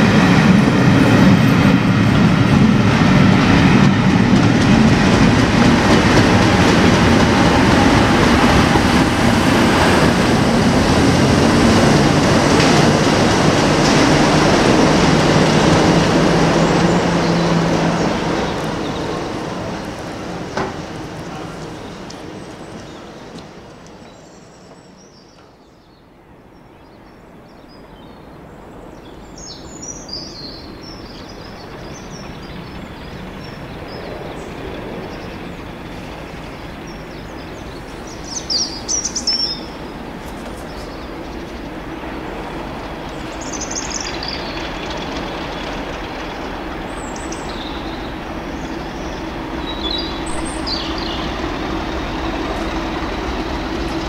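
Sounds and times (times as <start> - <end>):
diesel locomotive approaching: 0.0 - 54.0
birds chirping: 4.6 - 54.0.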